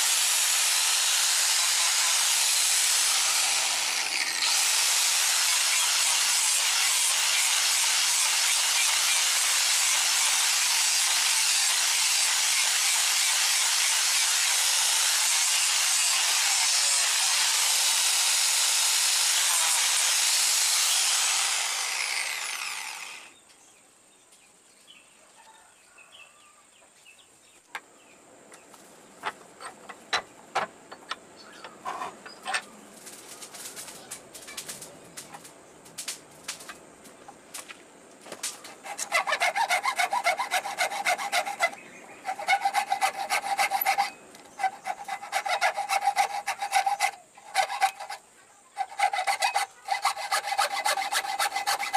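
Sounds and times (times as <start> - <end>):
angle grinder sanding wood: 0.0 - 23.3, 29.6 - 34.0, 38.7 - 51.9.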